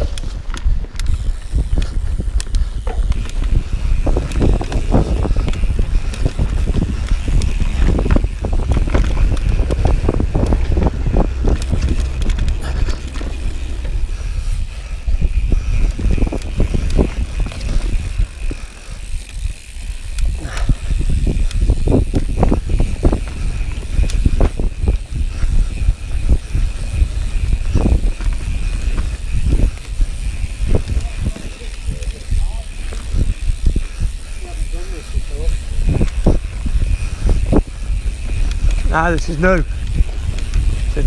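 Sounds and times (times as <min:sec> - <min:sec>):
bike rattling and knocking: 0:00.0 - 0:41.0
bike tyres on dirt: 0:00.0 - 0:41.0
heavy low rumble: 0:03.4 - 0:19.0.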